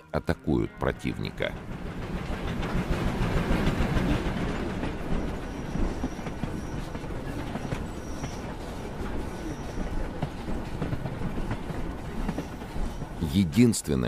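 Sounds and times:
train rumble: 0.3 - 14.0.

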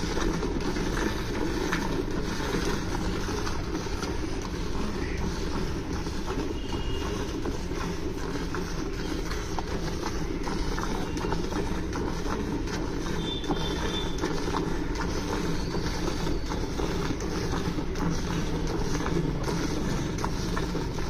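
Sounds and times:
milk squirting into steel bucket: 0.0 - 21.0.

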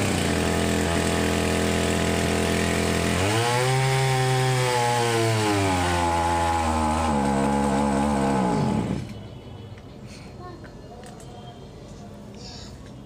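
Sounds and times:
small engine running: 0.0 - 9.1.

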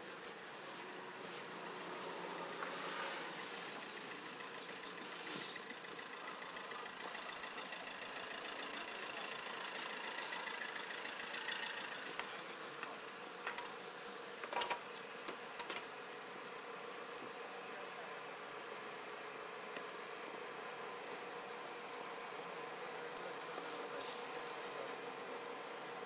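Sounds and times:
distant vehicle engine humming: 0.9 - 13.7.

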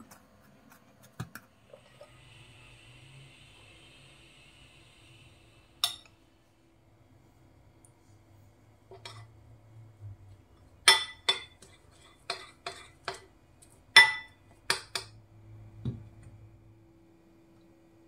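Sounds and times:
metal spoon clinking on ceramic bowl: 10.8 - 11.6, 14.0 - 15.1.

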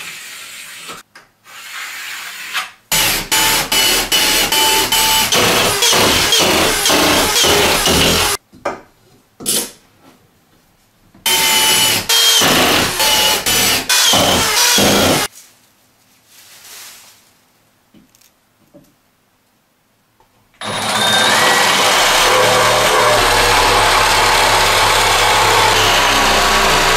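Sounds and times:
reciprocating saw cutting: 2.9 - 8.4, 11.3 - 15.3, 20.6 - 26.9
corded drill motor whine: 3.0 - 8.4, 20.6 - 26.9.

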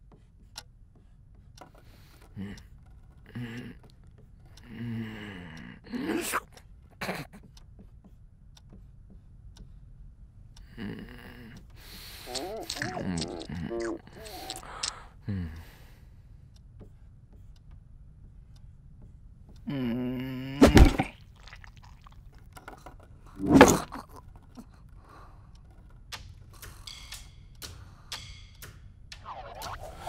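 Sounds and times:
faint clicks and scrapes: 0.0 - 4.6, 21.2 - 28.3
loud thump: 20.6 - 21.1
heavy thunk: 20.6 - 21.2, 23.4 - 24.0
low pitched sound: 29.2 - 30.0.

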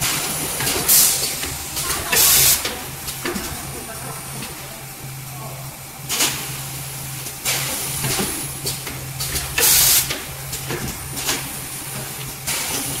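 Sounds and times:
compressed air hisses: 0.0 - 2.8, 9.6 - 10.2
machine humming: 0.0 - 13.0.

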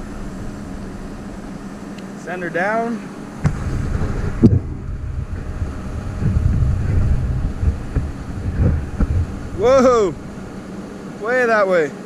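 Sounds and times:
excavator rumbling under load: 3.1 - 11.2.

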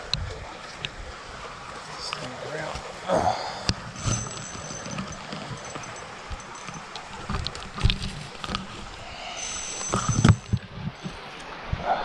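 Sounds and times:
knocks and crackles: 3.7 - 11.2
leafy branches rustling and scraping: 3.8 - 11.8.

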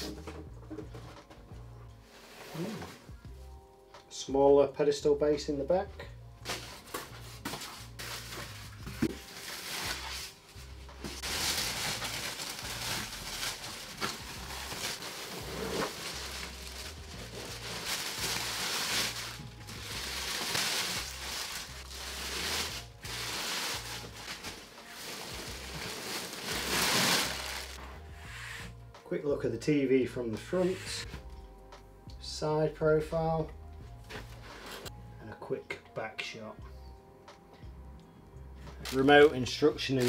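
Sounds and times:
plastic packaging crinkling: 11.0 - 27.8.

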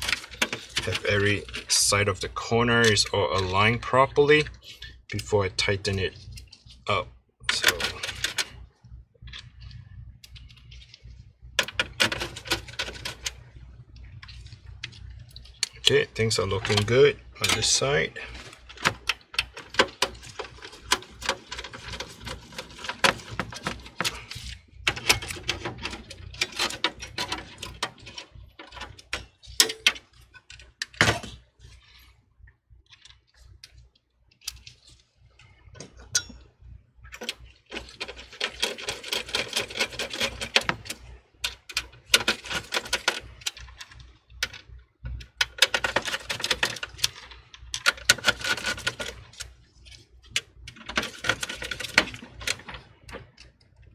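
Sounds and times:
small parts clicking and rattling: 0.0 - 2.1, 5.9 - 32.1, 32.7 - 53.9.

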